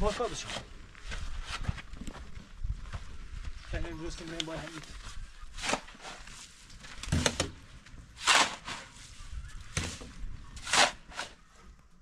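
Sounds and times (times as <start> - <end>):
shovel scraping wet mortar: 5.5 - 6.6, 8.2 - 11.4.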